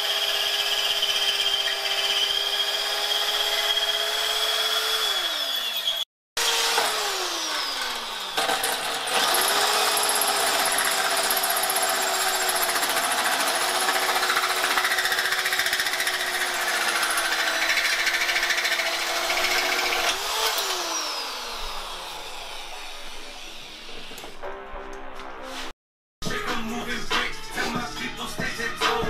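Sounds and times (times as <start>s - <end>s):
electric drill motor whine: 0.0s - 13.0s, 15.4s - 24.2s
hole saw grinding metal: 0.0s - 24.2s.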